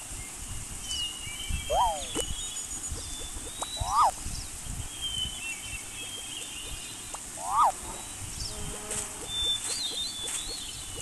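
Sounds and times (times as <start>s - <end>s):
outdoor ambience: 0.0s - 11.0s
faint high bird chirps: 0.8s - 11.0s
animal cry rising and falling: 1.7s - 2.1s, 3.8s - 4.1s, 7.4s - 7.8s.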